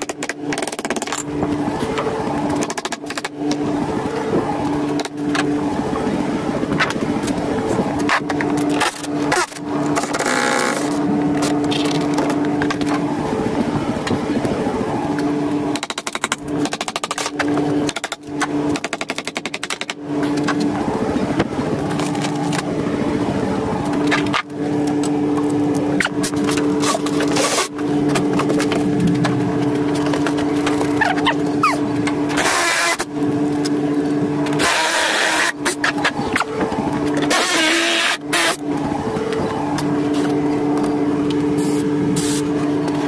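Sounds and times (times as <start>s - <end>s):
power tool rattling on wood: 8.0s - 13.0s.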